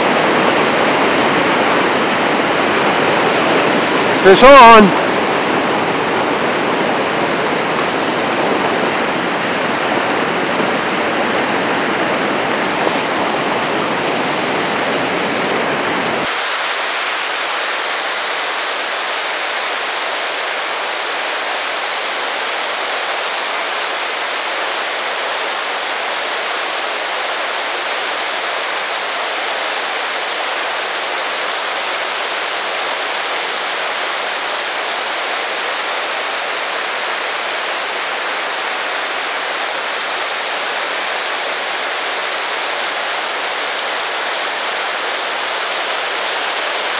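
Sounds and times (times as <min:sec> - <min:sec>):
river rapids rushing: 0:00.0 - 0:46.9.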